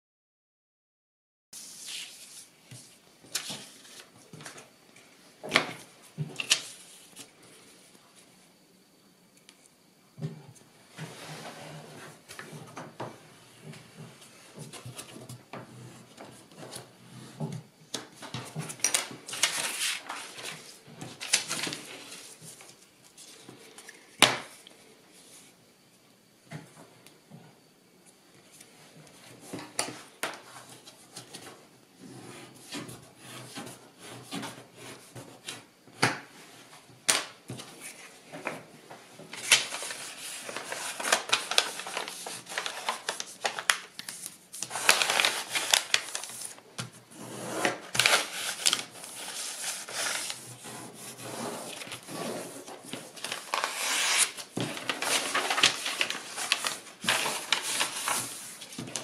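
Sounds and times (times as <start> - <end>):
paper rustling and crackling: 1.6 - 4.7, 5.5 - 7.3, 17.9 - 24.4, 37.1 - 59.0.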